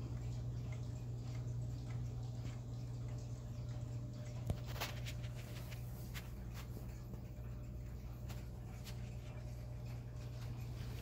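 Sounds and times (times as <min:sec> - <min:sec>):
pendulum wall clock ticking: 0:00.0 - 0:04.4.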